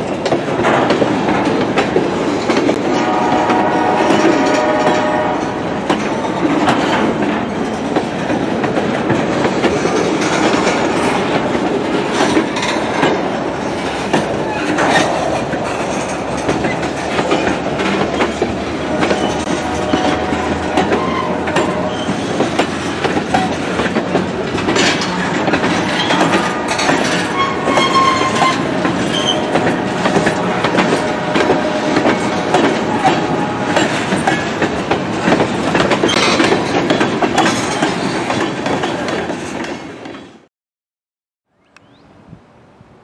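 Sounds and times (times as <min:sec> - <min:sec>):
train wheels clicking over rail joints: 0:00.0 - 0:40.5
train wheel squeals: 0:14.5 - 0:22.4, 0:25.0 - 0:34.4.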